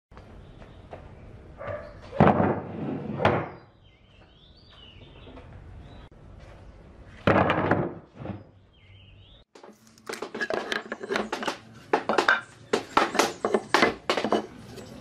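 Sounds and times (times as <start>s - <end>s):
wooden boards clattering on table: 7.2s - 8.4s, 9.6s - 14.5s.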